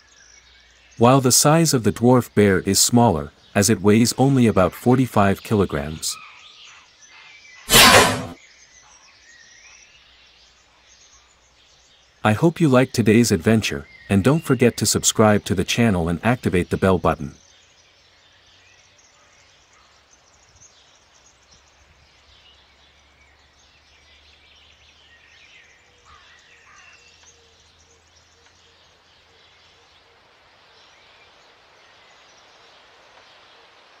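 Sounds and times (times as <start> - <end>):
small birds chirping: 8.4 - 33.8
soft hiss: 27.8 - 34.0.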